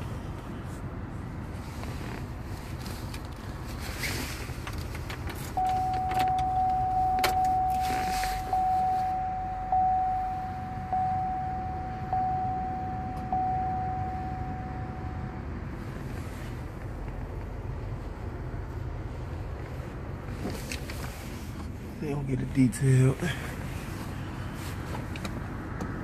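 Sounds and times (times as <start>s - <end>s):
car engine idling: 0.0s - 26.0s
car warning chime dinging: 5.5s - 15.7s.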